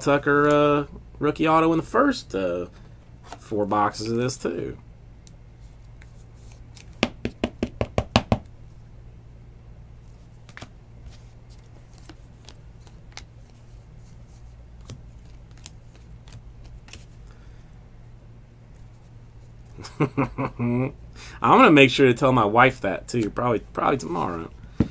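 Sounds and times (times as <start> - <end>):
steady low hum: 0.0 - 24.9
cards clicking while shuffled: 11.5 - 13.7, 14.8 - 17.2.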